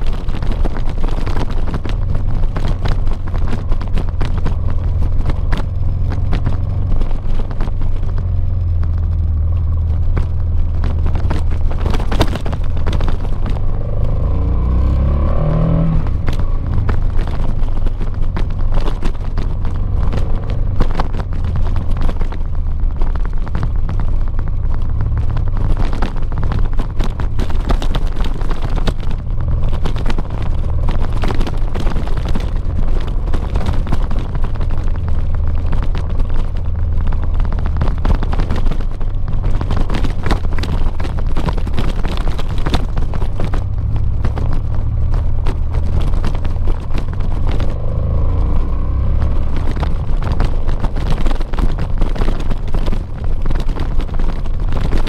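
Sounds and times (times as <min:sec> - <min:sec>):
motorcycle engine rumble: 0:00.0 - 0:55.0
wind buffeting microphone: 0:00.0 - 0:55.0.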